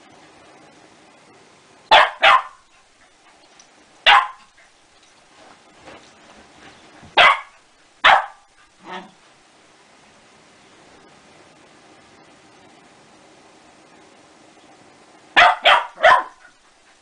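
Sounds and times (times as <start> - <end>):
dog barking: 1.9 - 2.6, 4.0 - 4.5, 7.2 - 9.1, 15.4 - 16.5.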